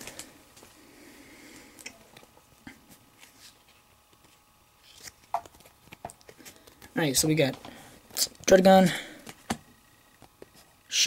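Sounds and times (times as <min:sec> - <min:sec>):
cards and foil pack rustling: 0:03.1 - 0:08.6.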